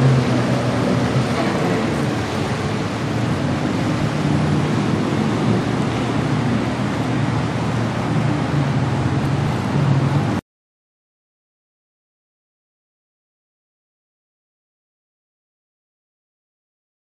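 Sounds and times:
jet ski engines humming: 0.0 - 10.4
waves: 0.0 - 10.4
wind: 0.0 - 10.4.

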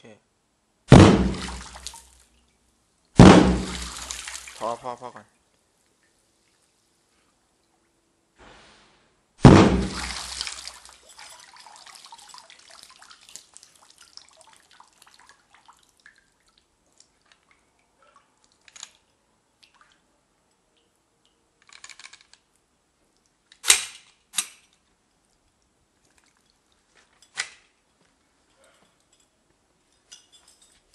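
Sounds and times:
sharp knocks: 0.9 - 1.6, 3.2 - 4.0, 9.4 - 10.1
underwater pistol shot: 0.9 - 1.9, 3.2 - 4.4, 9.4 - 10.8
splashing and trickling water: 1.2 - 2.8, 3.4 - 9.0, 9.7 - 21.5, 24.6 - 27.8.

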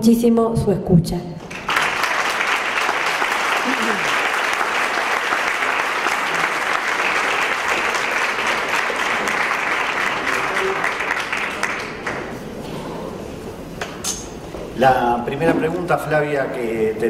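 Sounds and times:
audience applauding: 1.4 - 12.4.

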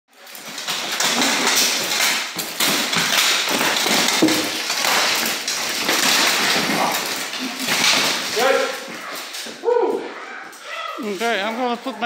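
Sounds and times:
plate armour clattering: 0.1 - 9.6.

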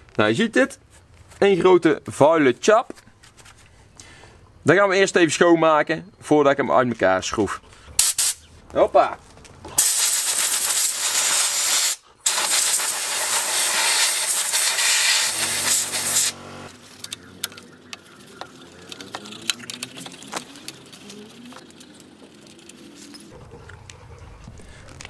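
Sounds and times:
compressed air blasting: 8.0 - 8.5, 9.8 - 16.6.

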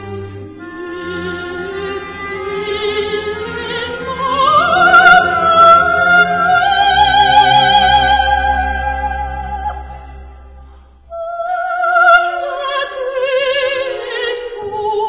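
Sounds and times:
orchestral accompaniment: 0.0 - 11.1
soprano singing: 0.0 - 15.0.

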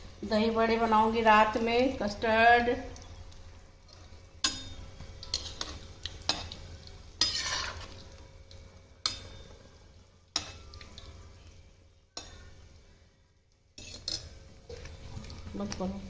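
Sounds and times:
food sizzling in hot oil: 0.0 - 16.0
metal utensil scraping a pan: 4.0 - 9.6, 10.3 - 11.2, 12.2 - 12.7, 13.8 - 15.3.

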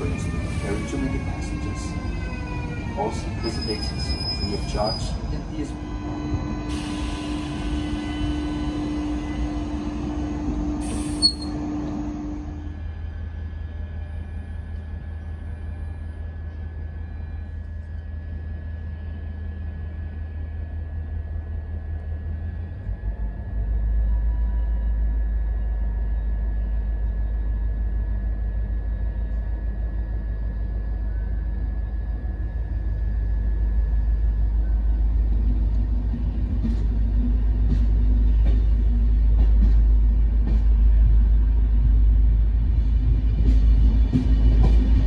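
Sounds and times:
diesel locomotive drone: 0.0 - 45.0
thin steady whine: 3.0 - 37.6.

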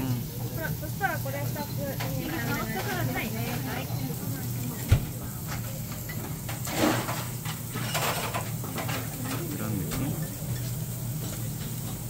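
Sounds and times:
faint diners chatter: 0.0 - 12.0
tableware clinking: 5.6 - 11.8
scrape or rustle: 6.7 - 8.3.

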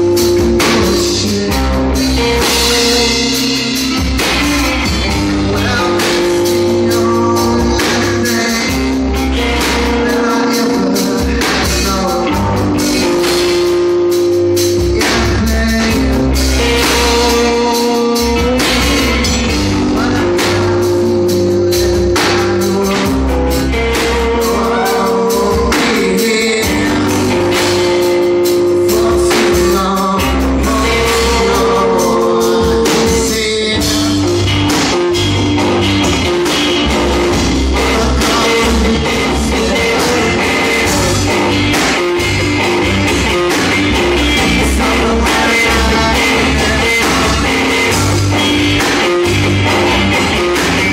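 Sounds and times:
man singing: 0.0 - 35.0, 35.6 - 50.9
drum kit: 0.0 - 50.9
electric guitars: 0.0 - 50.9.

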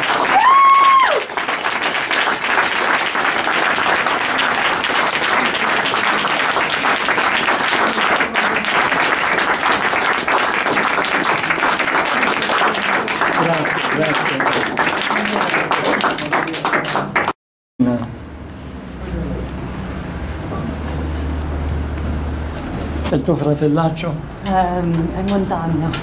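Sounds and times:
crowd applauding: 0.0 - 17.4.

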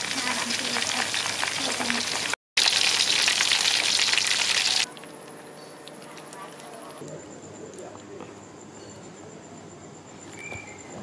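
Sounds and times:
hot oil sizzling: 0.0 - 7.0
meatballs frying in bubbling oil: 0.0 - 7.0.

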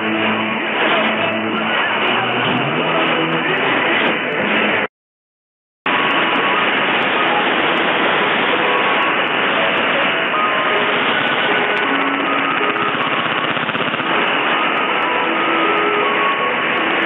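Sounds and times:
radio static hiss: 5.9 - 17.0.

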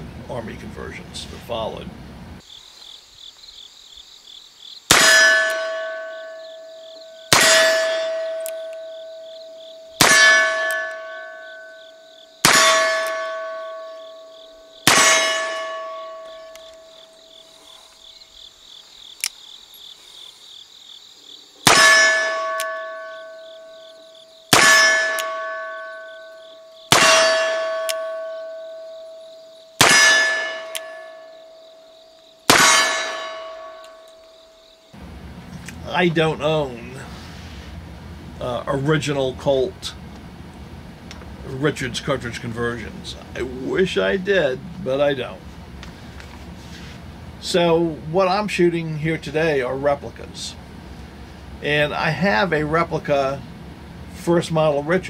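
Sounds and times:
insects chirping: 0.3 - 55.0
steel target ringing: 4.9 - 17.0, 21.7 - 31.6, 32.5 - 34.2.

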